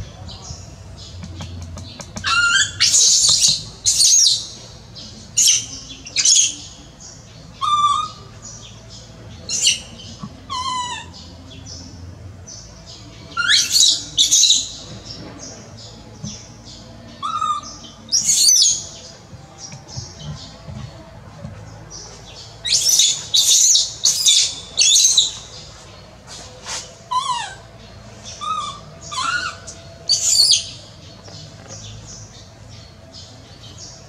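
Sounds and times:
baby monkey crying: 2.2 - 4.3, 10.5 - 11.2, 27.1 - 27.7, 28.4 - 30.7.

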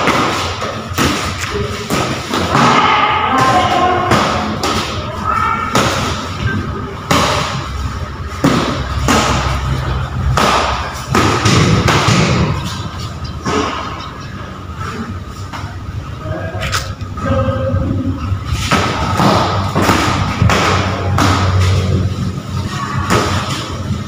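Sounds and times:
punches and kicks thudding on pads: 10.2 - 12.6.

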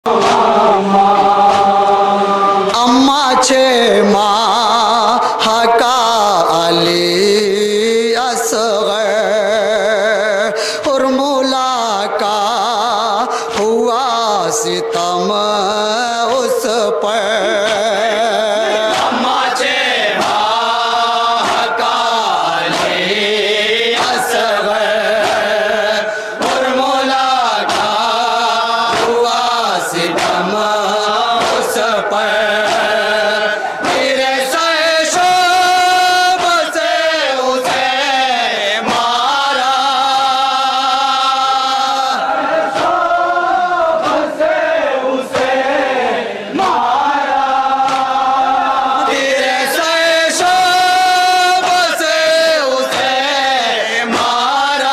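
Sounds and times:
men chanting a lament: 0.0 - 54.9.

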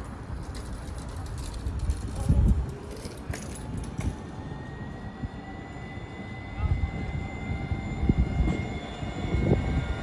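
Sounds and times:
low street rumble: 0.0 - 10.0
tram motor whine rising: 2.5 - 10.0.

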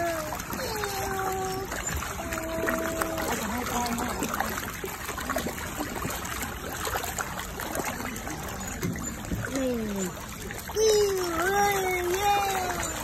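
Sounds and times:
fish thrashing and splashing: 0.0 - 13.0.

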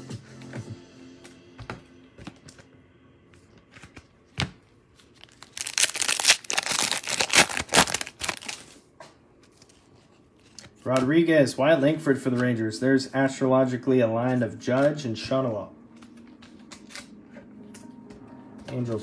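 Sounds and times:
foil wrapper tearing and crinkling: 5.1 - 8.8.

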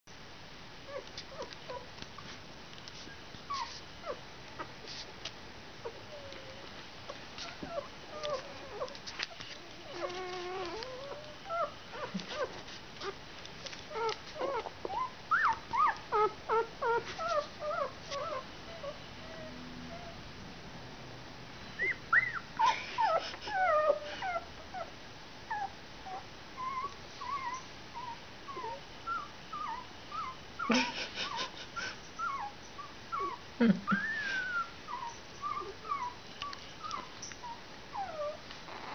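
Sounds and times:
puppies squeaking and whimpering: 3.5 - 4.7, 7.4 - 13.2, 13.9 - 20.2, 21.8 - 24.9, 25.5 - 30.4, 32.2 - 38.9.

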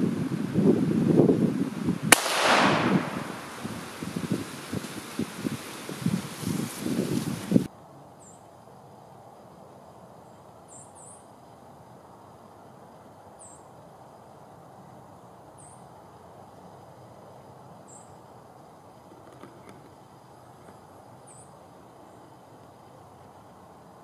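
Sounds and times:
rustling and microphone handling: 3.4 - 7.7
small bird chirping: 10.2 - 11.3, 20.6 - 22.3.

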